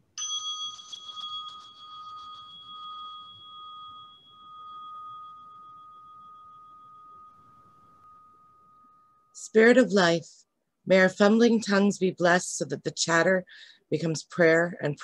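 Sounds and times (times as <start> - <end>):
bell ringing with high tone: 0.1 - 9.8.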